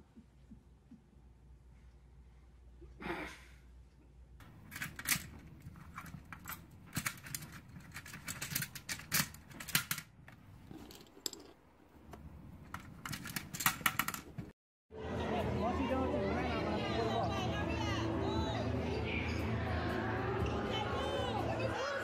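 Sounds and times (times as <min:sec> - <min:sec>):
plastic discs clicking: 0:12.1 - 0:14.5.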